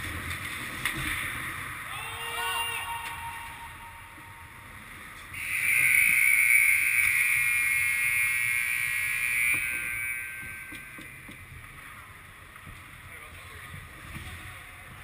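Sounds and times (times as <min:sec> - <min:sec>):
high-pitched game buzzer: 0:02.0 - 0:04.8.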